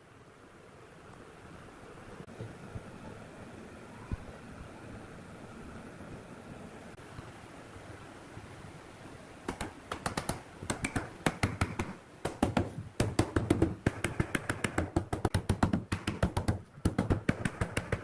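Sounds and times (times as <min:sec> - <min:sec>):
wooden block knocking on wood: 0:09.5 - 0:18.0.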